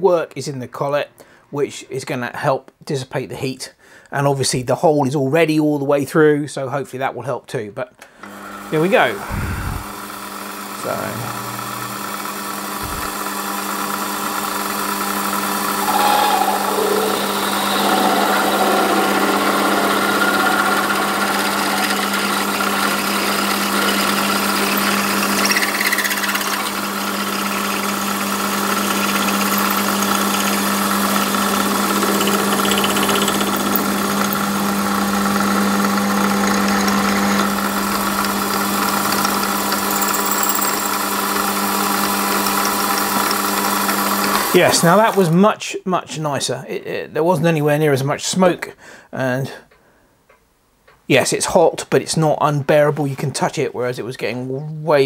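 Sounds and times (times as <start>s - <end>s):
lathe humming: 8.3s - 44.6s
drill cutting metal: 8.4s - 45.2s.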